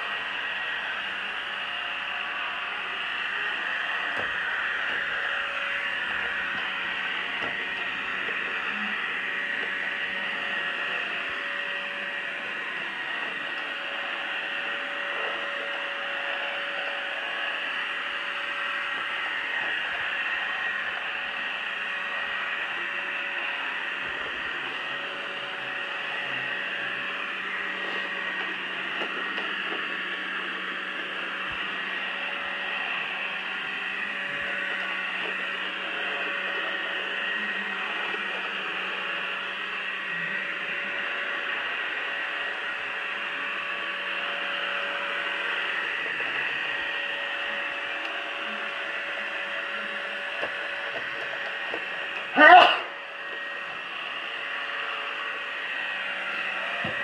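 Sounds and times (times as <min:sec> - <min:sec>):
robot vacuum whirring: 0:00.0 - 0:57.0.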